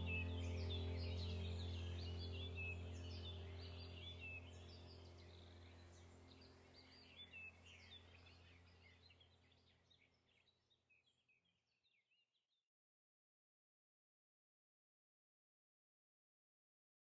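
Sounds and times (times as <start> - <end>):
low sustained music drone: 0.0 - 10.1
faint birdsong chirps: 0.0 - 12.7.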